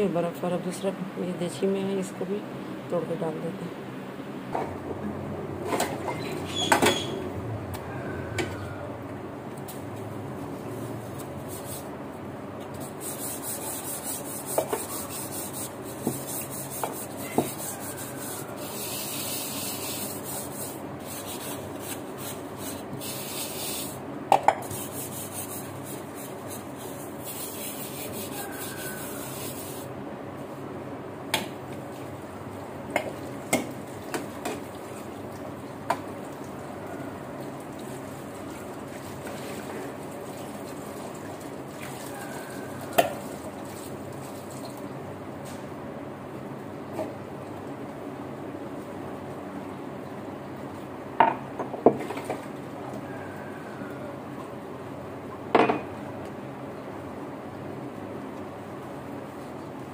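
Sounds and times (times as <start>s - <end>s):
scrubbing metal bowls: 12.8s - 24.0s, 24.6s - 29.9s.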